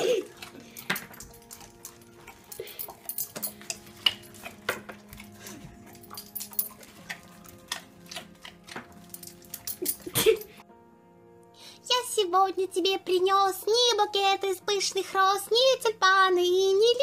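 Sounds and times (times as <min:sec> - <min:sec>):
dog claws clicking on tile: 0:00.0 - 0:10.4.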